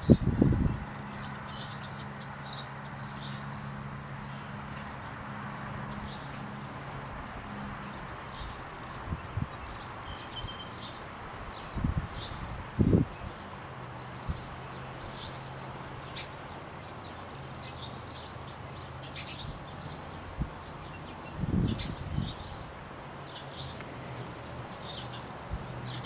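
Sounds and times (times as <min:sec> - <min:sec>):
songbirds chirping: 0:00.0 - 0:26.0.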